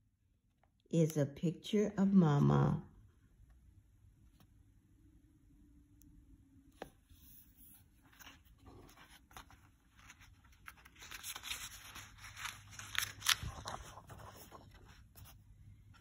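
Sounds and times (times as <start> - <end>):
paper rustling and crackling: 7.2 - 16.0
paper snapping: 12.4 - 13.8.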